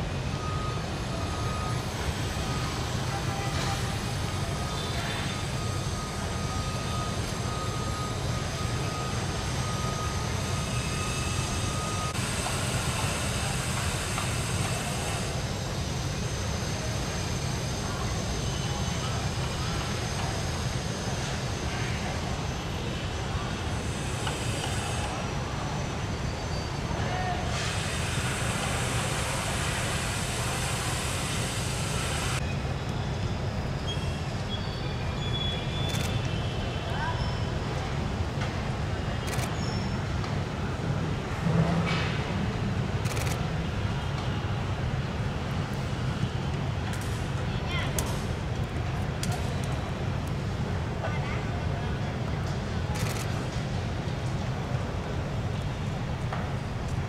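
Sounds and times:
hiss: 10.7s - 20.0s, 23.8s - 25.3s, 27.4s - 32.4s.

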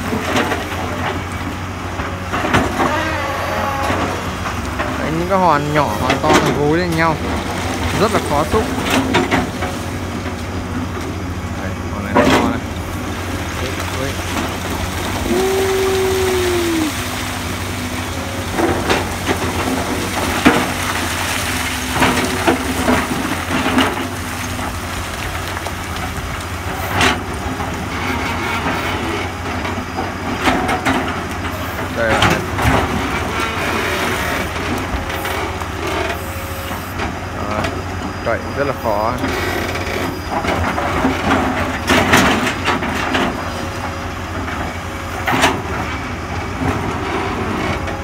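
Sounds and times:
excavator diesel engine running: 0.0s - 48.0s
bucket knocking and rocks clattering: 12.0s - 27.9s.

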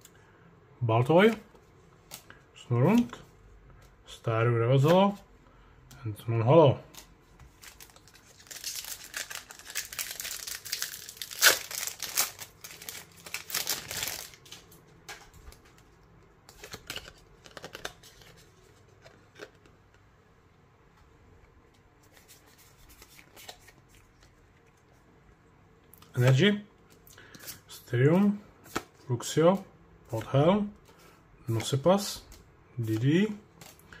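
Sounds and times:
cards rustling and clicking: 6.8s - 20.1s, 21.7s - 25.0s, 30.2s - 34.0s
foil wrapper crinkling and tearing: 7.6s - 14.7s.

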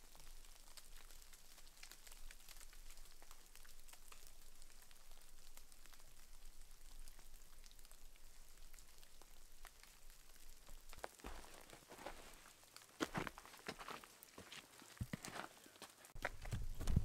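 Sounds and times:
faint hiss: 0.0s - 12.6s
snow and ice pattering: 0.0s - 17.0s.

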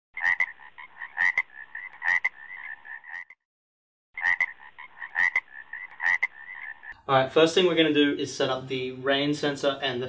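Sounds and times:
croaking calls with clicks: 0.2s - 3.4s, 4.2s - 7.0s.

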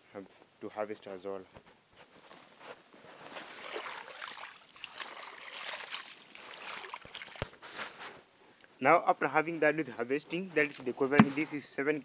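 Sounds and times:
water splashing and trickling: 3.5s - 7.6s.

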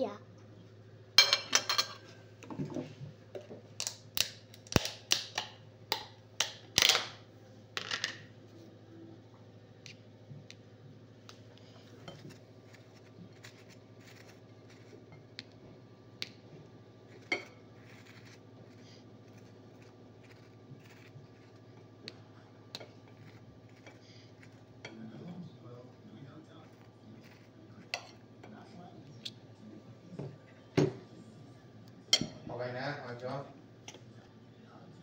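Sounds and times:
knife spreading butter: 12.0s - 15.2s, 17.0s - 21.9s, 22.8s - 25.3s, 26.5s - 28.2s.

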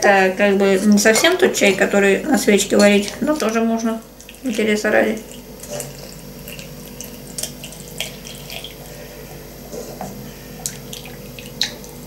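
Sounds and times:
water pouring into teapot: 4.0s - 9.0s, 10.6s - 12.0s.

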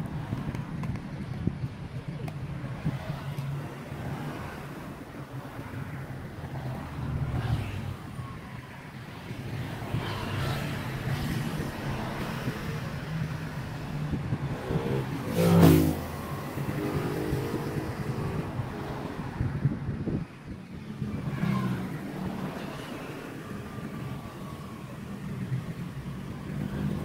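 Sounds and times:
city traffic rumble: 0.0s - 27.0s
wind: 0.0s - 27.0s
vehicle passing loudly: 14.2s - 19.4s.

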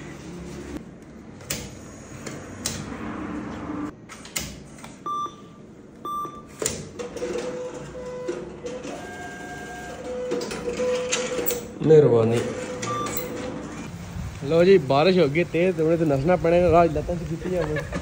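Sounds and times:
short machine beeps: 5.0s - 6.5s, 12.8s - 13.4s.

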